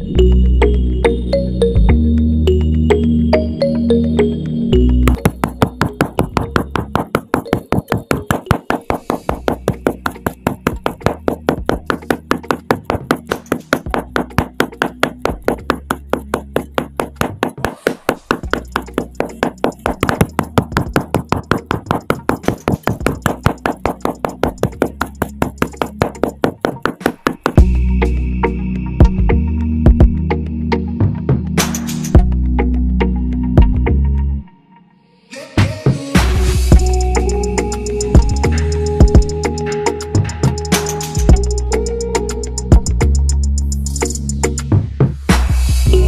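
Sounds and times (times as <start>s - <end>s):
rapid even knocking: 5.2s - 27.7s
low drone: 27.6s - 31.0s.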